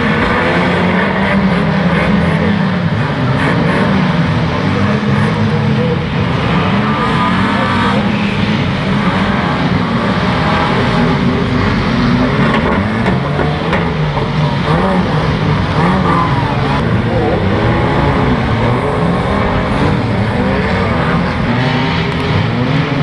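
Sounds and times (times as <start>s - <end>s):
racing car engines revving: 0.0s - 23.0s.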